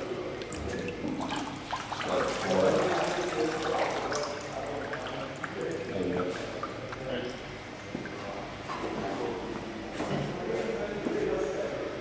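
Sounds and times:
water pouring off metal frame: 1.1 - 7.0.

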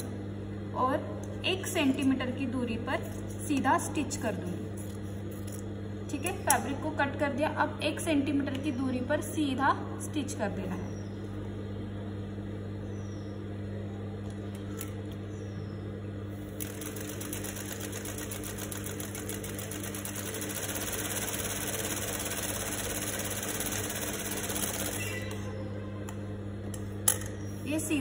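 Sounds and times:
sewing machine motor humming: 16.6 - 25.4.

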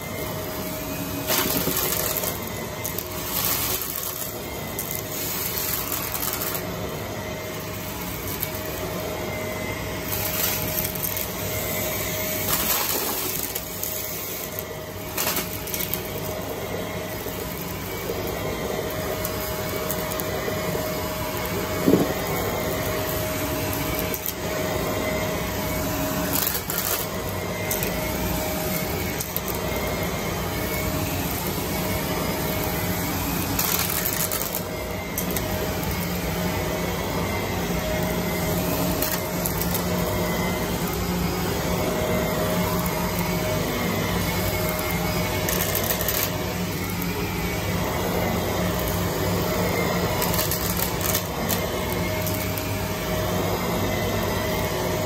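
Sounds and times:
vacuum cleaner motor running: 0.0 - 55.0
debris rattling through vacuum: 1.2 - 24.4.

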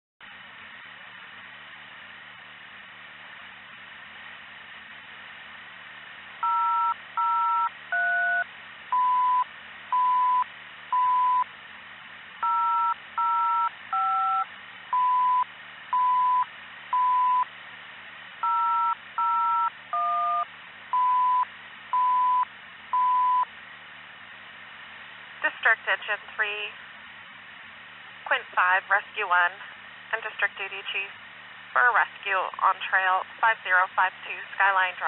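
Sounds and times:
single steady beeps: 6.4 - 11.5, 12.4 - 17.5, 18.4 - 23.5
two-tone alert beeps over radio: 23.0 - 23.4
radio hiss: 25.4 - 26.8, 28.3 - 35.0.

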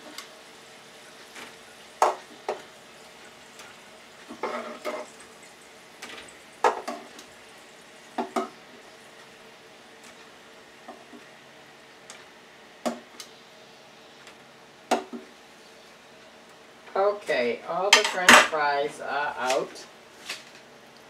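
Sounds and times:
faint frying sizzle: 0.0 - 21.0
metal utensil clinking on fryer: 17.9 - 18.6.

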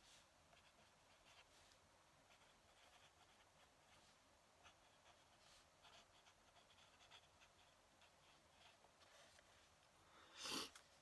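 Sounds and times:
pen nib scratching on paper: 0.5 - 8.9.

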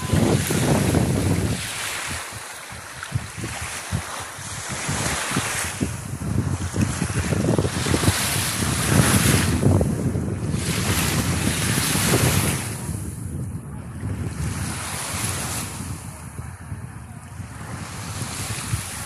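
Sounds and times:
small sea waves on sand: 0.0 - 13.2, 14.0 - 19.0
wind buffeting microphone: 0.0 - 19.0.

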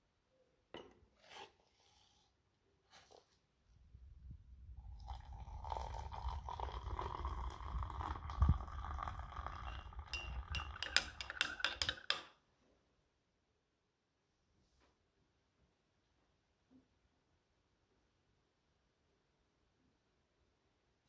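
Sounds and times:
water running: 4.9 - 11.1
glassware and dishes clinking: 9.4 - 12.3.

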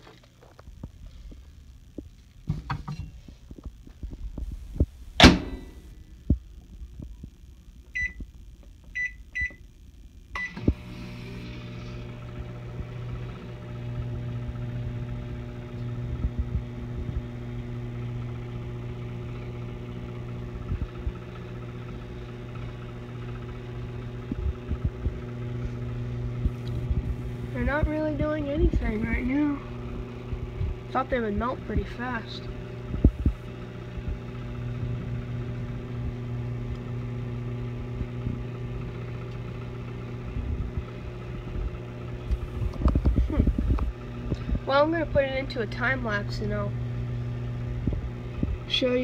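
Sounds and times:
microwave oven humming: 0.0 - 49.0
microwave door shutting: 5.2 - 5.8
keypad beeps: 8.0 - 8.2, 9.0 - 9.6.

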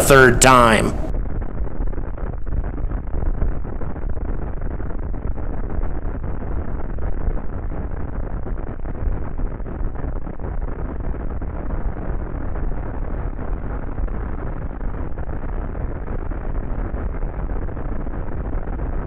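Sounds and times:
rocket engines rumbling: 0.0 - 1.1.

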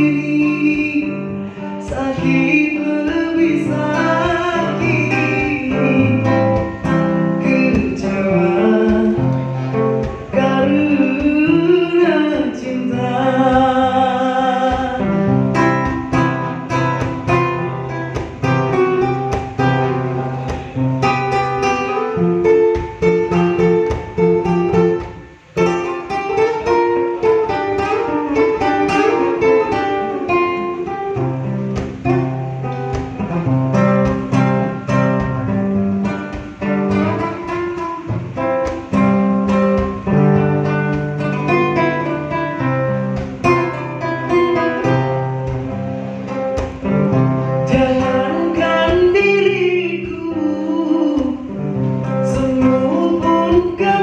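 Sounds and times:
person singing: 0.0 - 17.0, 47.6 - 54.0
fingerstyle acoustic guitar: 0.0 - 54.0.

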